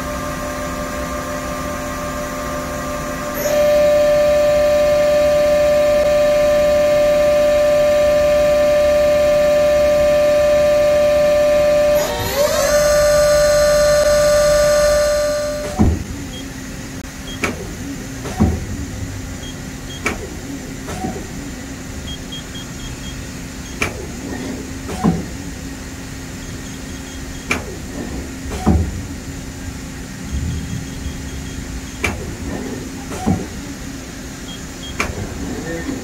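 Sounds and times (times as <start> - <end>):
lathe spindle high whine: 0.0 - 16.7
low machine hum: 0.0 - 36.0
tool turret clunks: 15.6 - 16.2, 17.3 - 18.8, 23.8 - 25.4, 27.4 - 29.1, 32.0 - 33.7.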